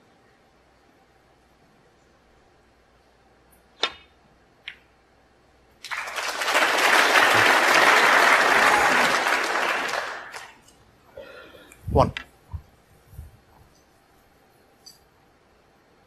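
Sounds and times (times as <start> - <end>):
snooker balls clicking: 3.8 - 4.9
audience applause: 5.8 - 10.6.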